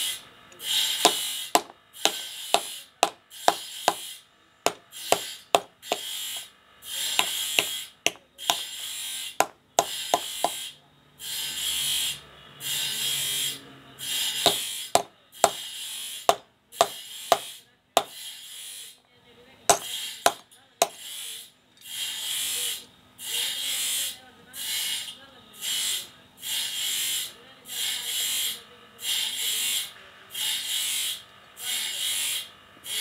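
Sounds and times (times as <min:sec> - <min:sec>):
hammer tapping metal: 0:01.0 - 0:04.1, 0:04.7 - 0:06.1, 0:07.1 - 0:08.7, 0:09.4 - 0:10.6, 0:14.5 - 0:15.6, 0:16.3 - 0:18.2, 0:19.7 - 0:21.0.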